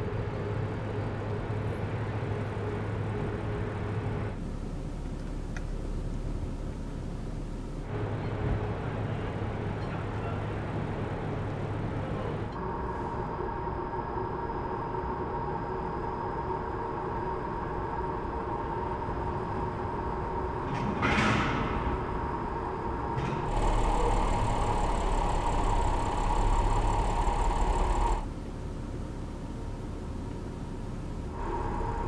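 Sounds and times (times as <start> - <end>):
rumble of car driving: 0.0 - 13.6, 21.8 - 32.0
car engine hum: 2.4 - 13.5, 23.5 - 32.0.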